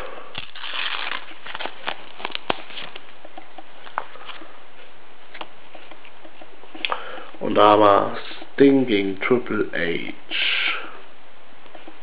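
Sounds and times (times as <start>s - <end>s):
packet tearing and crinkling: 0.3s - 3.1s.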